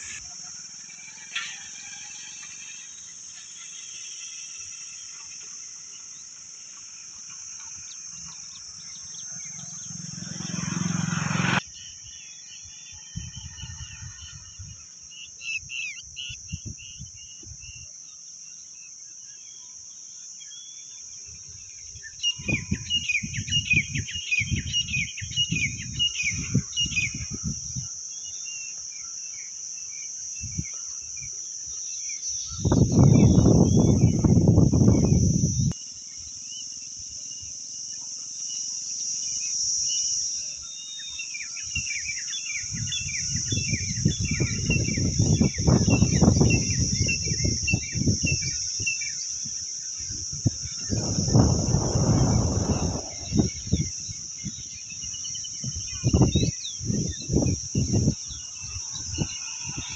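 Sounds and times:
birds chirping: 0:00.0 - 0:17.4, 0:50.4 - 0:59.9
high-pitched insect drone: 0:00.0 - 0:59.9
gusty low rumbles: 0:50.5 - 0:54.0
low rumble: 0:50.8 - 0:53.8.

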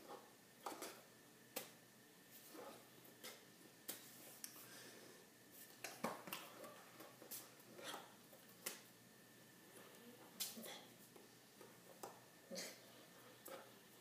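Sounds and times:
hands clicking and slapping: 0:00.6 - 0:01.8, 0:05.8 - 0:07.4, 0:08.5 - 0:08.9.

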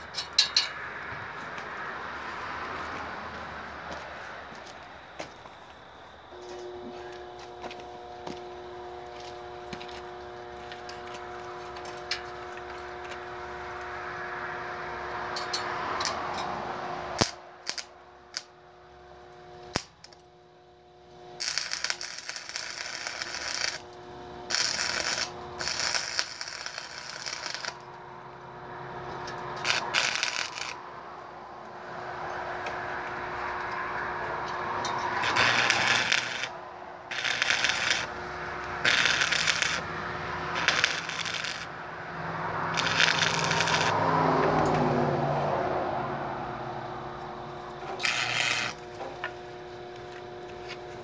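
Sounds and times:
steady hum: 0:03.0 - 0:51.0
welding arc crackling hiss: 0:04.6 - 0:14.2, 0:17.2 - 0:18.5, 0:19.5 - 0:20.2, 0:21.3 - 0:28.4, 0:29.3 - 0:30.9, 0:35.1 - 0:42.0, 0:42.6 - 0:44.0, 0:48.0 - 0:51.0.

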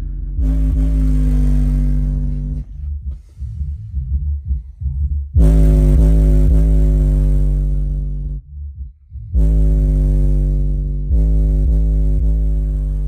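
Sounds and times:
subwoofer playing deep bass: 0:00.0 - 0:13.0.

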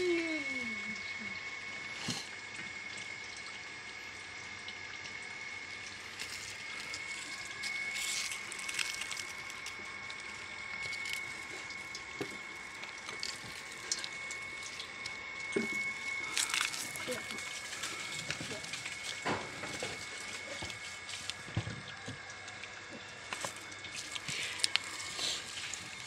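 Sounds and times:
steady high-pitched tone: 0:00.0 - 0:01.4
liquid trickling and dripping: 0:00.0 - 0:26.0.

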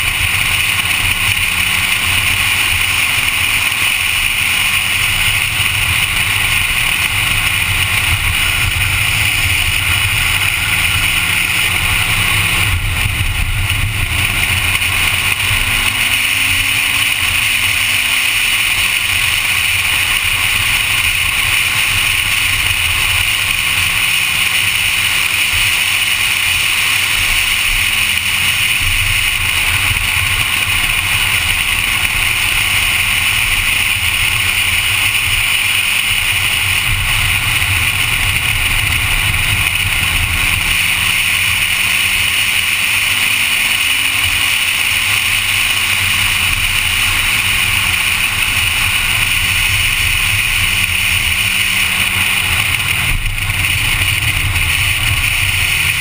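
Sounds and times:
wind noise: 0:00.0 - 0:24.1
car engine at speed: 0:00.0 - 0:56.0
road noise: 0:00.0 - 0:56.0.

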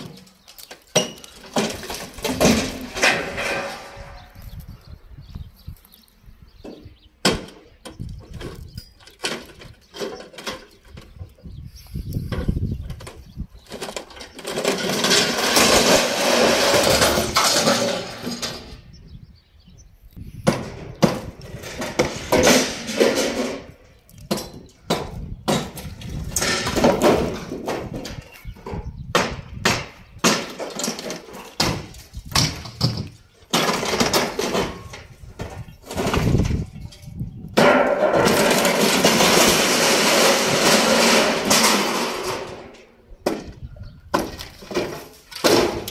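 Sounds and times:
boards clattering down: 0:00.0 - 0:04.4, 0:06.7 - 0:11.2, 0:12.3 - 0:18.8, 0:20.4 - 0:37.0, 0:37.6 - 0:45.9
sharp knocks and blows: 0:20.4 - 0:36.6, 0:37.6 - 0:45.9.

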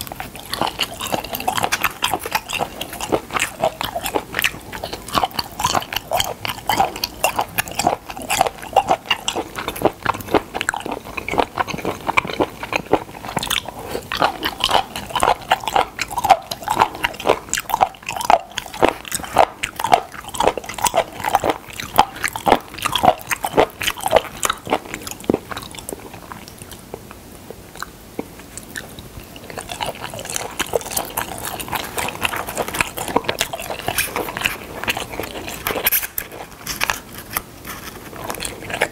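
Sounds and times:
wet crunchy chewing: 0:00.0 - 0:38.9.

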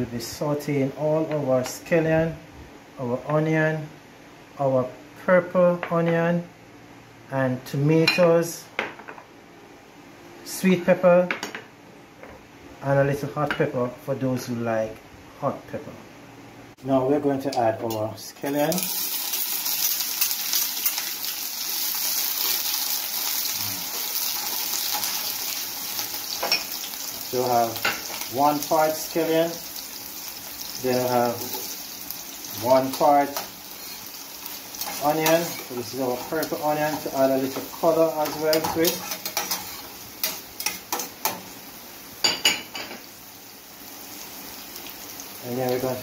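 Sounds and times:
scallions sizzling in a pan: 0:18.4 - 0:46.0
metal spoon stirring: 0:38.2 - 0:41.4.

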